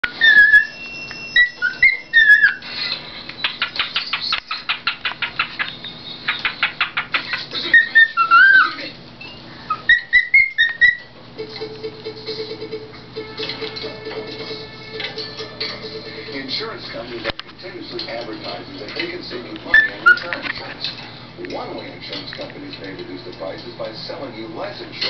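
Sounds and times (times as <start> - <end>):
cockatiel whistling a tune: 0.0 - 4.7, 7.7 - 11.1, 19.7 - 20.3
cockatiel chirps: 0.1 - 2.7, 3.4 - 11.1.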